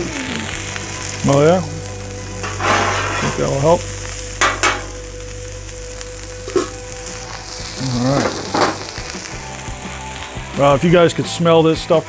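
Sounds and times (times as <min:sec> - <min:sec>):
burgers sizzling on a griddle: 0:00.0 - 0:12.0
metal lid clink: 0:04.4 - 0:05.0
metal spatula clacking: 0:04.4 - 0:05.0.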